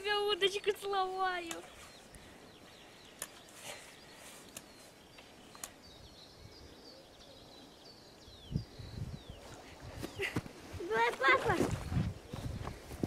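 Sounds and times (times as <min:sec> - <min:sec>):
birds chirping: 0:00.0 - 0:13.0
faint clicks: 0:01.4 - 0:02.3, 0:03.0 - 0:03.6, 0:04.4 - 0:05.8.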